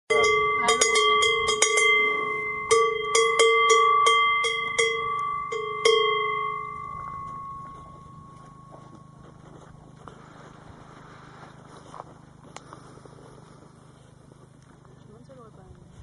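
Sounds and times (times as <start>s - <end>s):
cowbell clanking: 0.1s - 9.3s.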